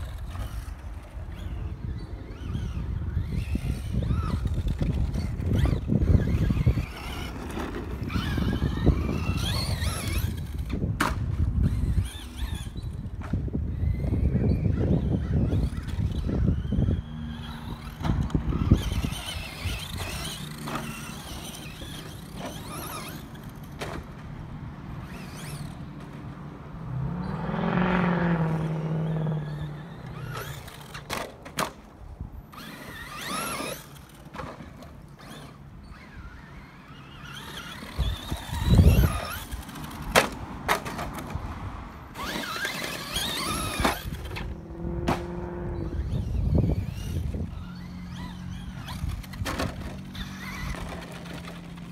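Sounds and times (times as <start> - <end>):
rc truck motor whining: 0.0 - 26.3, 27.1 - 41.4, 42.1 - 51.9.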